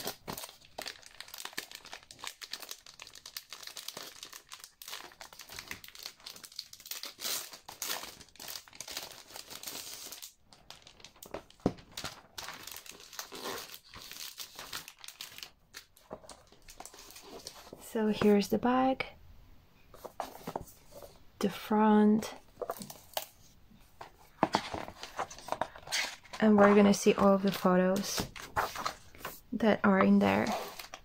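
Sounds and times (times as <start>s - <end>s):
plastic packaging crinkling: 0.0s - 17.8s.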